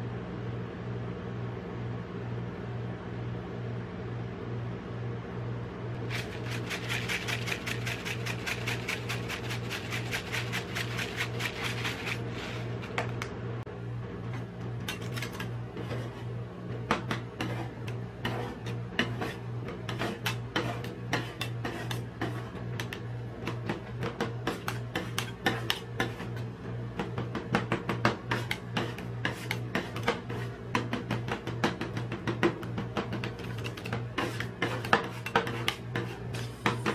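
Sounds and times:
refrigeration unit humming: 0.0 - 36.9
sprinkles rattling from a shaker: 6.0 - 12.2.

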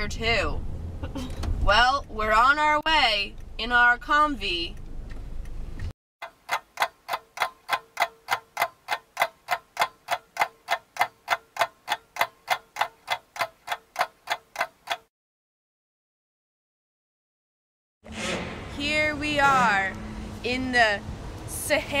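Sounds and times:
low car interior rumble: 0.0 - 5.9
clock-like ticking: 6.2 - 15.1.

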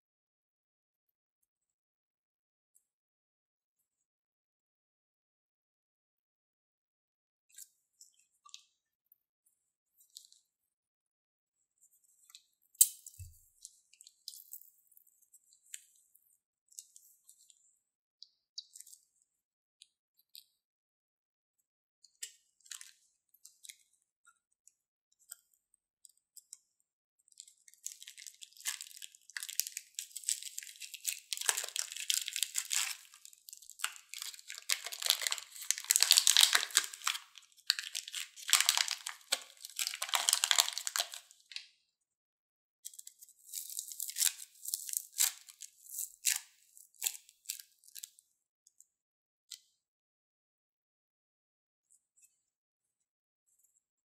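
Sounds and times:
plastic bag crinkling: 28.0 - 41.2.

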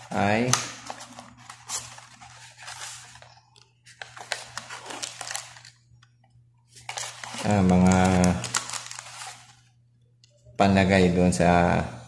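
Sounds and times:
packets crinkling: 0.0 - 5.8, 6.7 - 9.6
cardboard rustling and scraping: 0.8 - 5.7, 6.8 - 9.6.

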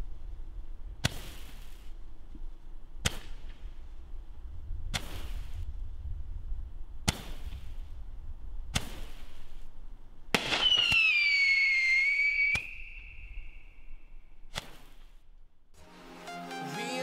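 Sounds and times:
firework hiss: 1.0 - 2.0, 10.4 - 13.6
firework sharp pops: 1.0 - 4.0, 4.8 - 5.9, 7.0 - 8.1, 8.7 - 15.3.

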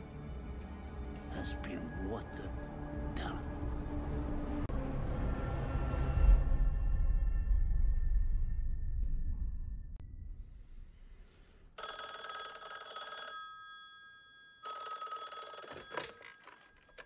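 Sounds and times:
low rumble: 4.0 - 11.8
rotary telephone ringing: 11.8 - 17.0
telephone handset clatter: 15.2 - 17.0.

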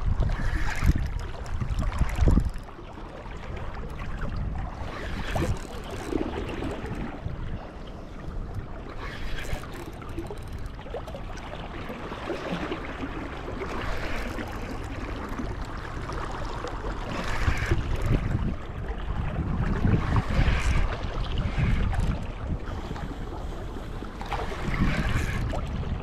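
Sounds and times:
wind buffeting microphone: 0.0 - 11.2, 17.1 - 26.0
flowing river water: 0.0 - 26.0.

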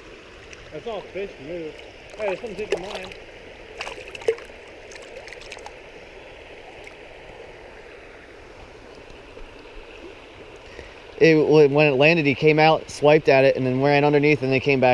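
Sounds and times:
stream running over rocks: 0.0 - 14.9.

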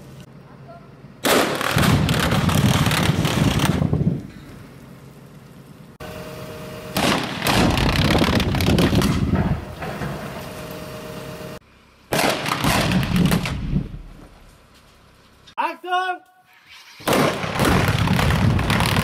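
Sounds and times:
rumble and crackling rock: 1.8 - 6.0, 7.5 - 10.4, 17.6 - 19.0
excavator engine running: 2.9 - 12.1
rock blasts: 7.0 - 10.4, 12.1 - 14.4, 17.0 - 19.0.

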